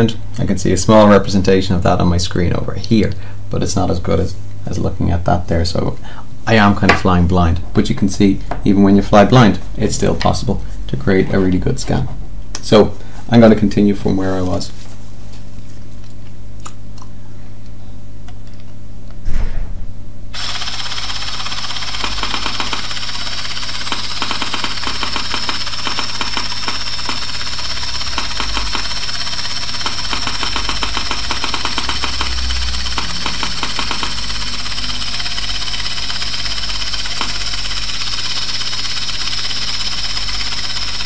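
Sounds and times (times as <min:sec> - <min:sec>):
loud thump: 0:19.2 - 0:20.0
scanner hissing and whining: 0:19.3 - 0:41.0.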